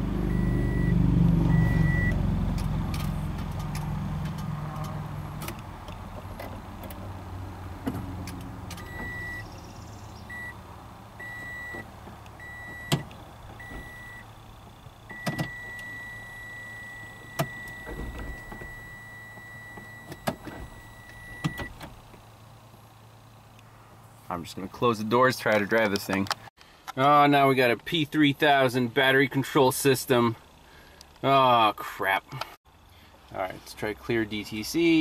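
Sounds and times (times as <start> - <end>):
low hum: 0.0 - 24.7
high warning beep: 0.3 - 2.2, 8.8 - 9.5, 10.3 - 10.6, 11.2 - 11.8, 12.4 - 13.0, 13.6 - 14.3, 15.1 - 21.7.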